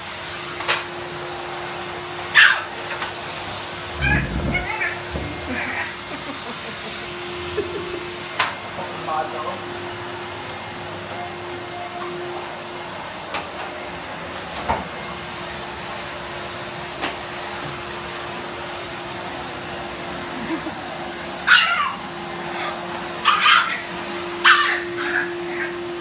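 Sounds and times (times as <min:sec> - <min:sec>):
vacuum cleaner humming: 0:00.0 - 0:26.0
puppy yapping: 0:02.3 - 0:02.8, 0:03.9 - 0:06.0, 0:21.4 - 0:25.8.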